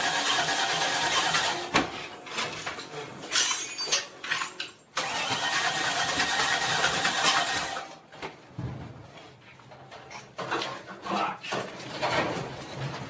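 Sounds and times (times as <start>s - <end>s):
engine cranking over: 0.0s - 1.6s, 5.0s - 7.8s.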